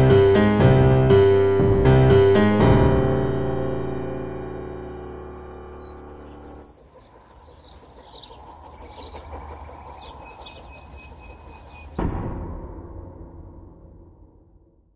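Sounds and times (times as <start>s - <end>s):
piano chord: 0.0s - 6.7s
insects trilling: 5.2s - 12.0s.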